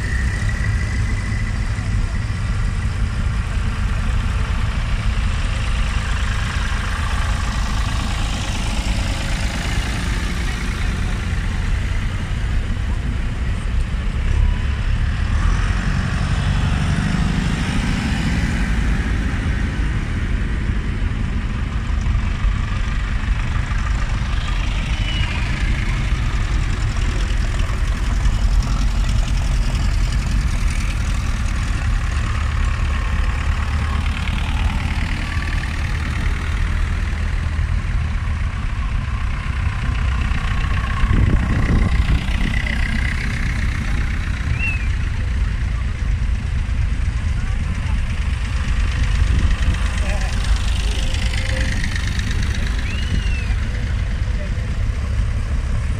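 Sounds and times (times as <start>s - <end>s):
tractor engines running: 0.0s - 55.9s
crowd chatter: 39.9s - 55.9s.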